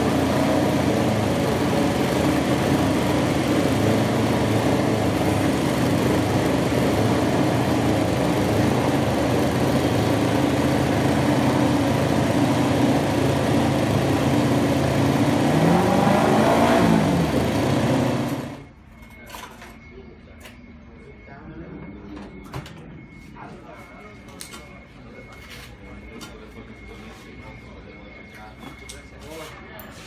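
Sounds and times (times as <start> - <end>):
motorcycle engines running: 0.0 - 18.7.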